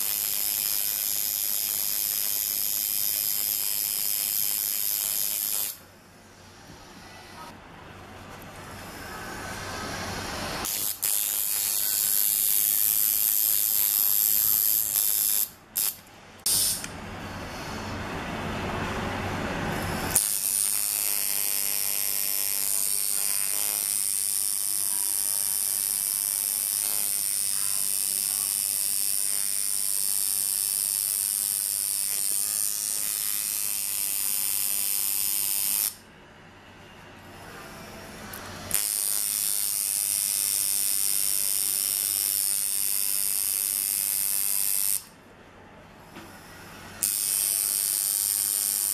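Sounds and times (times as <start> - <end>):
tattoo machine buzzing: 0.0 - 5.8, 10.2 - 16.9, 19.8 - 36.0, 38.3 - 45.2, 47.0 - 48.9.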